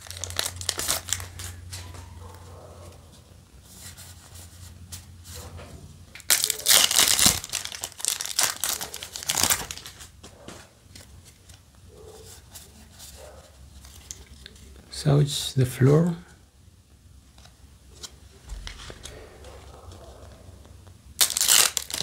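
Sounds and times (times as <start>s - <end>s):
foil wrapper crinkling and tearing: 0.0s - 1.8s, 6.2s - 10.1s, 21.2s - 22.0s.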